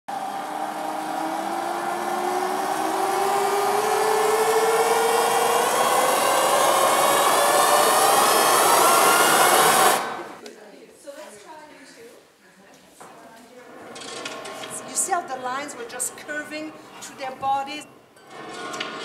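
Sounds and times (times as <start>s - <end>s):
electronic drone with rising tones: 0.1s - 10.4s.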